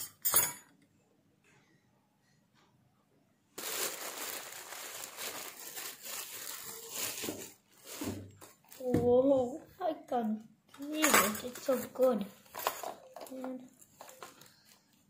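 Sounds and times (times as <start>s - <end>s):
plastic bag crinkling: 3.6s - 8.9s.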